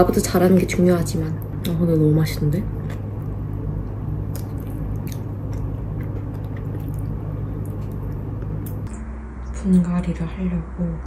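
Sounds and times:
steady low hum: 0:00.0 - 0:11.0
person chewing wetly: 0:04.2 - 0:08.9.

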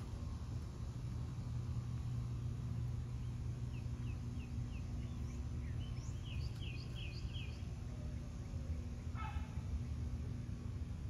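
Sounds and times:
steady low hum: 0:00.0 - 0:11.0
songbird chirping: 0:02.1 - 0:10.6.

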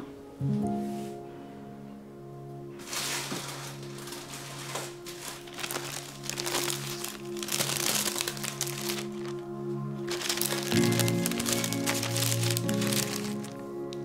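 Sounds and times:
background music with held notes: 0:00.0 - 0:14.0
paper crinkling: 0:02.8 - 0:14.0.

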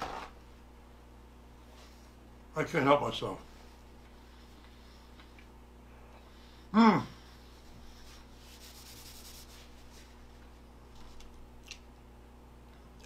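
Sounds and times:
low steady hum: 0:00.0 - 0:13.0
paper rubbing and rustling: 0:08.0 - 0:10.4.

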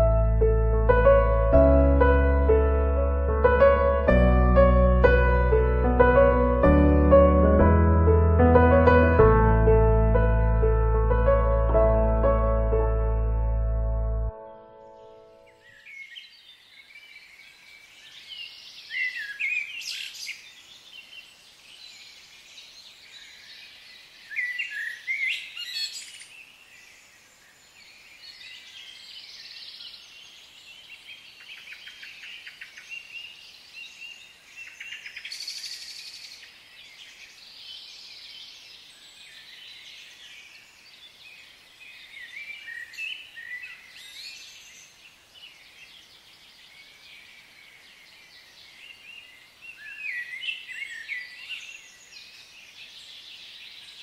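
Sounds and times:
birds singing and calling: 0:14.8 - 0:54.0.

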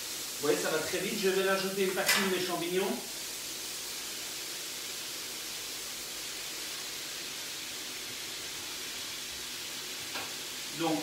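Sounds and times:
food sizzling in a pan: 0:00.0 - 0:11.0.

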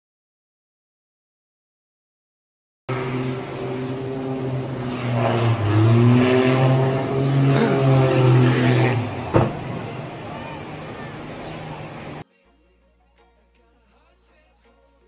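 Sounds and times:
small aircraft engine drone: 0:02.9 - 0:12.2.

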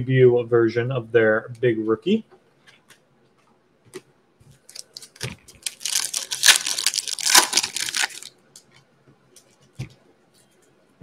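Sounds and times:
foil wrapper tearing and crinkling: 0:04.7 - 0:08.3.

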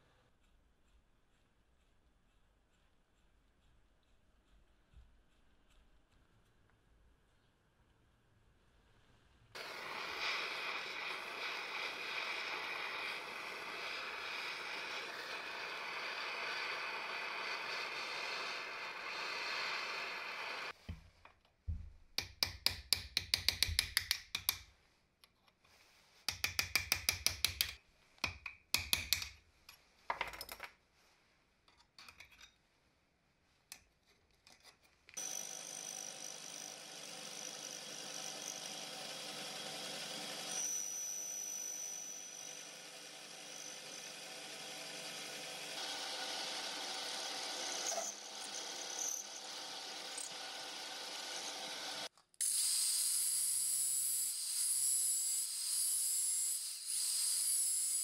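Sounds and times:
metal lathe running: 0:09.6 - 0:20.7, 0:35.2 - 0:52.1
blowtorch hissing: 0:09.6 - 0:20.8.

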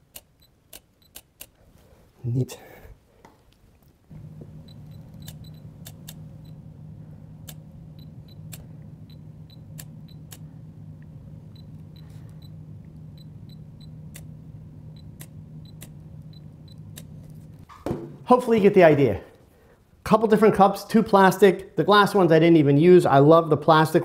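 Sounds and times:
steady low hum: 0:03.8 - 0:20.2.

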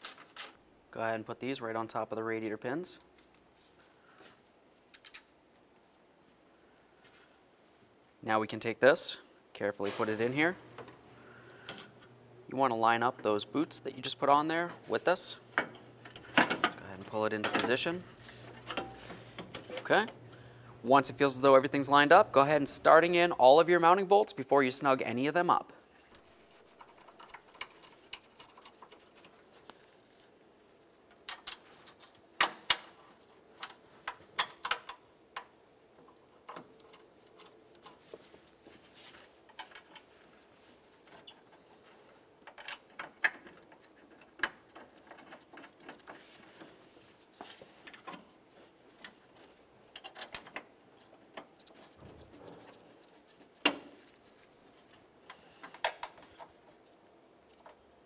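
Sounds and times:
bolts clicking and tapping: 0:30.6 - 0:38.2.

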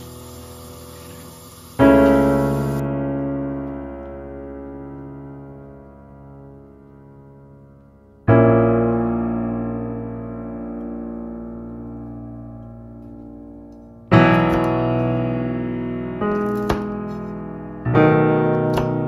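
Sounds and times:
soft piano chords: 0:00.0 - 0:19.0.

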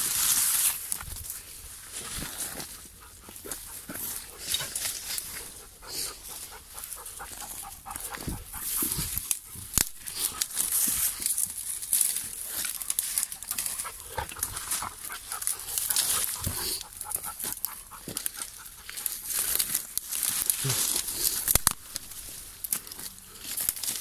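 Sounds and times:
twigs and leaves crackling: 0:00.0 - 0:24.0
dog moving through brush: 0:00.1 - 0:24.0.

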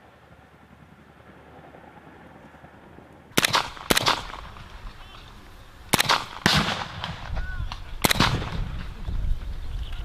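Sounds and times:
rifle shots with echo: 0:03.4 - 0:05.1, 0:05.9 - 0:09.0.

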